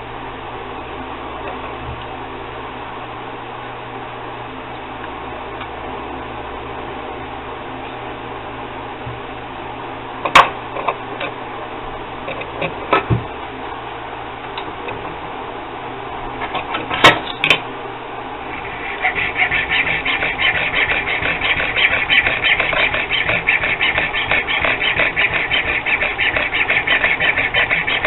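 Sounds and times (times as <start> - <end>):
hand file rasping: 18.5 - 28.0.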